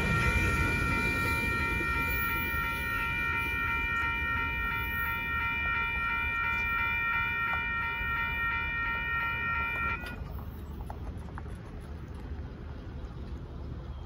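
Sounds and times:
railroad crossing bell ringing: 0:00.0 - 0:10.6.

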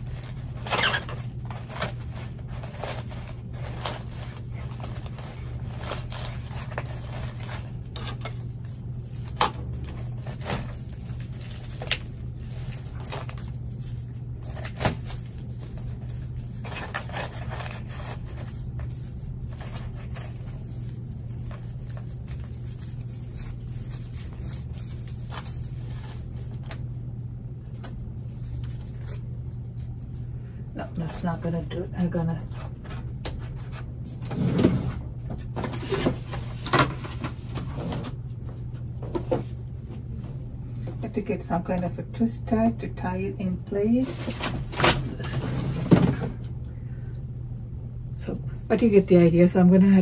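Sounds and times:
potting mix rustling and crunching: 0:00.0 - 0:26.8
steady low hum: 0:00.0 - 0:50.0.

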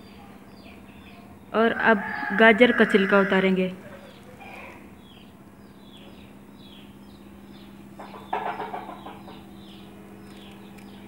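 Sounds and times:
birds chirping: 0:00.0 - 0:11.0
chicken clucking: 0:07.6 - 0:10.5.

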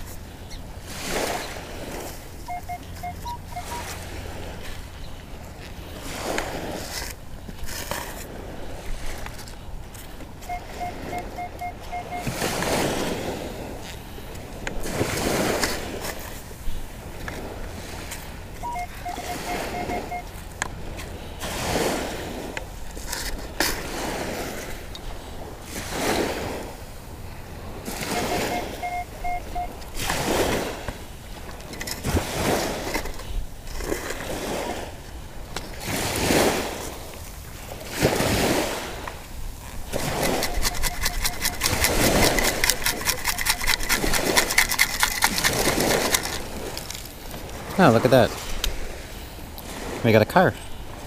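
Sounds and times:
metal detector beeps: 0:02.4 - 0:04.1, 0:10.4 - 0:13.2, 0:18.6 - 0:20.4, 0:27.9 - 0:30.2, 0:40.0 - 0:46.4
sand scoop digging in gravel: 0:39.6 - 0:48.4
gravel rattling in scoop: 0:39.7 - 0:47.2.

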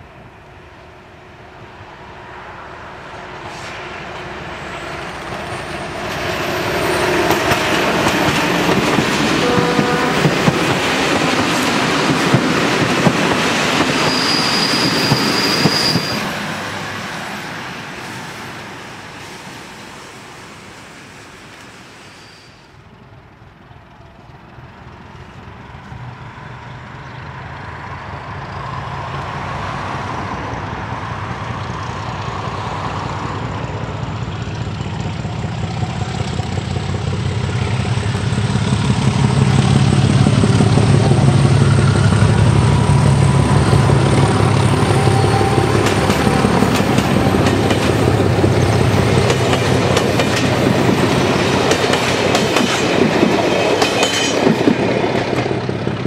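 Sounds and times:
diesel locomotive engine running: 0:01.6 - 0:21.9, 0:22.7 - 0:56.0
train wheels clattering over rail joints: 0:05.2 - 0:16.4, 0:43.6 - 0:56.0.

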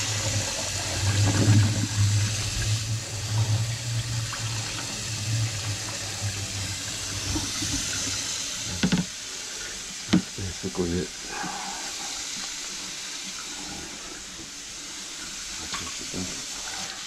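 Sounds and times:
faucet running into sink: 0:00.0 - 0:17.0.

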